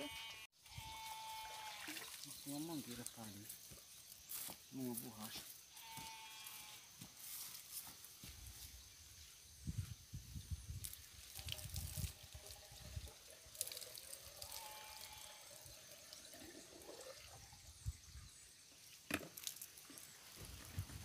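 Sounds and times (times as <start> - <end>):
water trickling and dripping: 1.4 - 5.0, 10.7 - 20.9.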